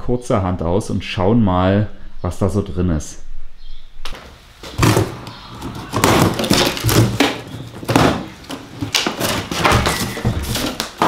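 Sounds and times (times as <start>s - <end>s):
cardboard rustling and scraping: 4.1s - 11.0s.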